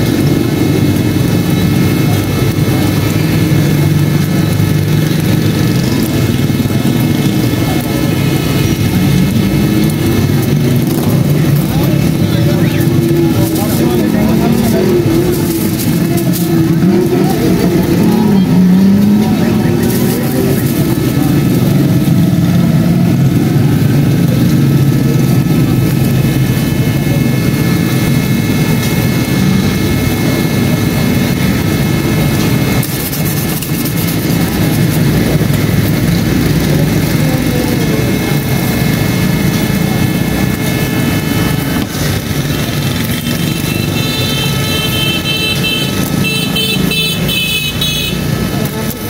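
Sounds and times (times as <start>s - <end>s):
engines rumbling: 0.0s - 49.0s
high multi-pitched tone: 12.0s - 26.1s.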